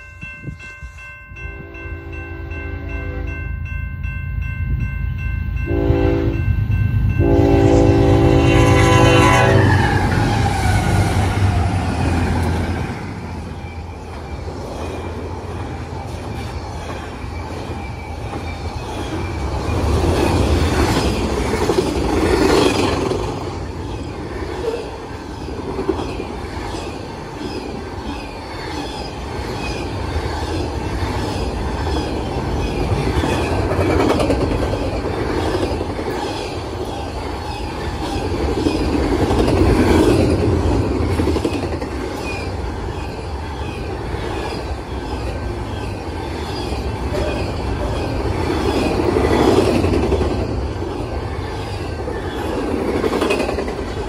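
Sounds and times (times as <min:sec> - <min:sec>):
crossing bell ringing: 0:00.0 - 0:09.6
train cars rumbling past: 0:00.0 - 0:54.0
train horn blasts: 0:01.6 - 0:03.4, 0:05.7 - 0:06.5, 0:07.1 - 0:10.0.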